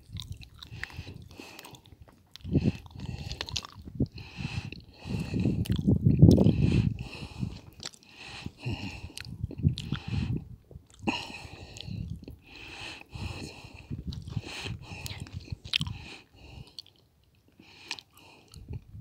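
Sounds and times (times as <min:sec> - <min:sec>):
crunching and crackling: 0:00.0 - 0:04.1, 0:05.5 - 0:06.5, 0:07.6 - 0:08.2, 0:10.7 - 0:12.4
wind buffeting microphone: 0:00.0 - 0:12.5, 0:13.1 - 0:16.7, 0:18.5 - 0:19.0.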